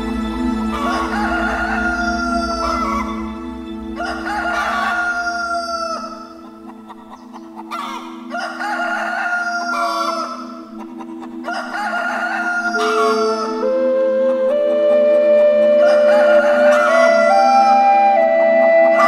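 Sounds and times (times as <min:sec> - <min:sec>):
droning background music: 0:00.0 - 0:19.0
rooster crowing: 0:00.6 - 0:03.4, 0:04.0 - 0:06.3, 0:07.7 - 0:10.5, 0:11.4 - 0:13.7, 0:15.8 - 0:17.8.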